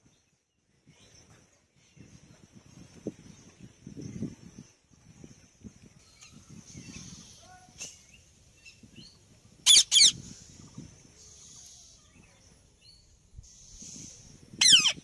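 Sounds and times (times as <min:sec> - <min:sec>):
parakeet screeching: 0:09.7 - 0:10.2, 0:14.6 - 0:15.0.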